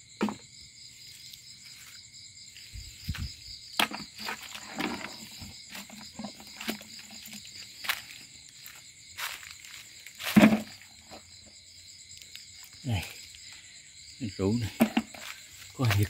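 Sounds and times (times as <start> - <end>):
insects chirring: 0.0 - 16.0
footsteps on dry leaves: 5.7 - 10.4, 15.2 - 16.0.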